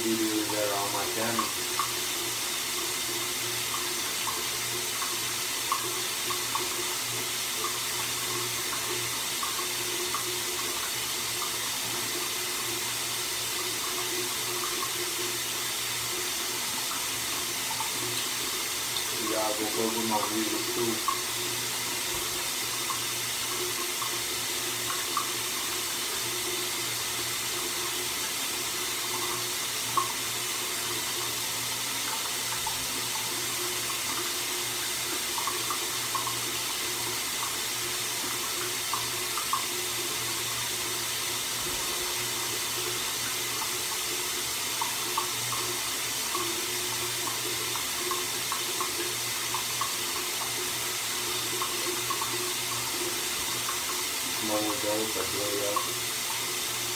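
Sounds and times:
running water from a tap: 0:00.0 - 0:56.9.

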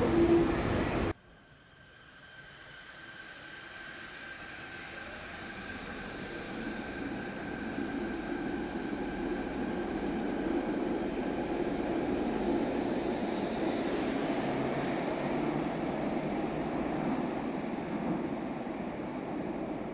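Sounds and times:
subway train rolling rumble: 0:00.0 - 0:19.9
hiss: 0:01.4 - 0:09.6.

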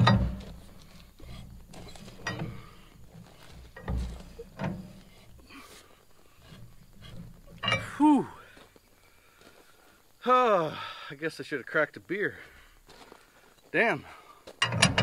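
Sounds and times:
tap and wrench creaking and clicking: 0:00.0 - 0:02.7, 0:14.6 - 0:15.0.

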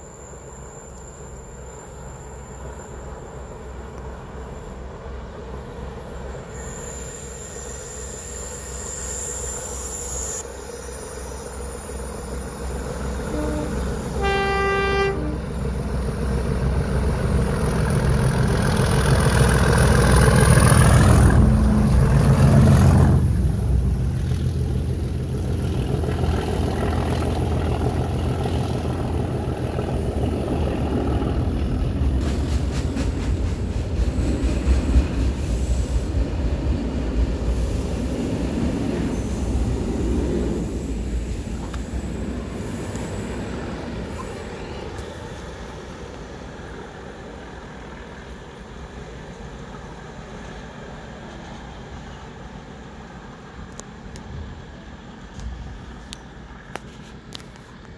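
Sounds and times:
diesel locomotive engines rumbling: 0:00.0 - 0:57.9
train wagons rolling past: 0:10.8 - 0:57.9
train horn blast: 0:13.2 - 0:15.7.

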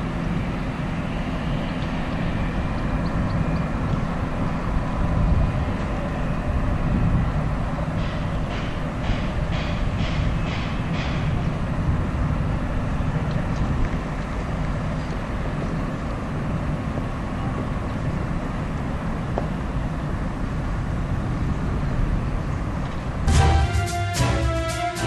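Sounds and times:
rail noise: 0:00.0 - 0:25.0
train diesel engines droning: 0:00.0 - 0:25.0
music: 0:23.3 - 0:25.0.

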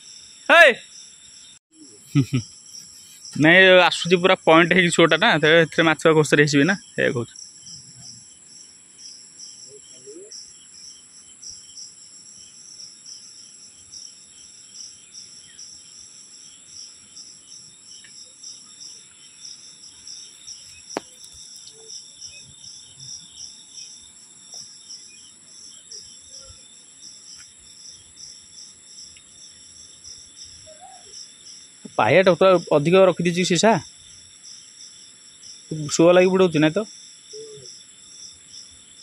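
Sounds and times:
high-pitched insect buzz: 0:00.0 - 0:05.2, 0:36.5 - 0:39.0
cricket chirping: 0:00.0 - 0:39.0.

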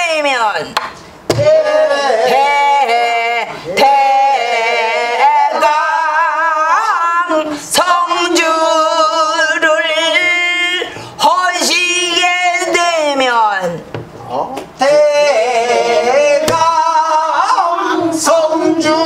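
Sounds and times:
sharp knocks: 0:00.8 - 0:01.5.

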